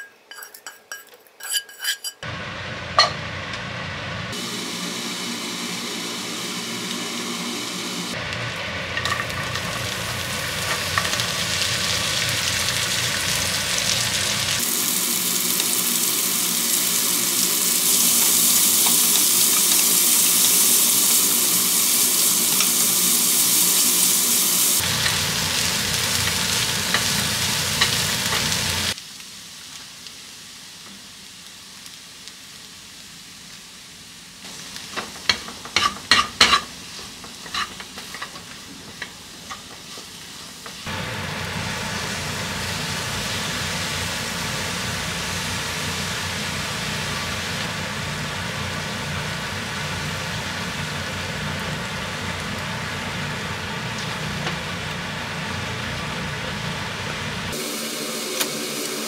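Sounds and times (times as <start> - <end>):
utensil scraping a pan: 0.0 - 2.2, 35.2 - 40.0
vegetables sizzling in a pan: 1.4 - 59.0.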